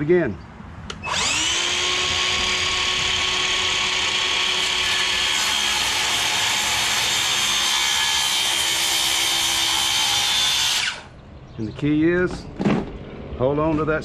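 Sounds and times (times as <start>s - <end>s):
circular saw cutting wood: 1.0s - 11.1s.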